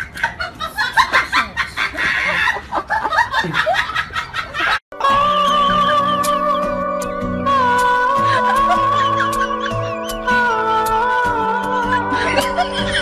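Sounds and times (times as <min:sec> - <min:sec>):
music with long held notes: 0:05.0 - 0:13.0
person giggling: 0:08.2 - 0:10.6, 0:12.0 - 0:13.0.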